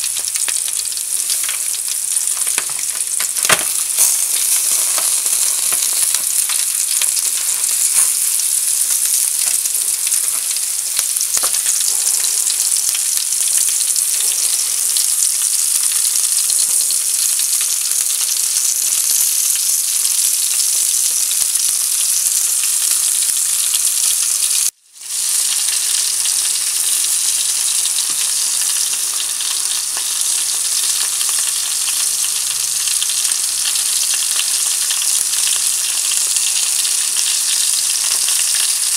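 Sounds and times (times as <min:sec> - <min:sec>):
faint crackles: 0:00.0 - 0:15.1
steaks sizzling on grill: 0:00.0 - 0:38.9.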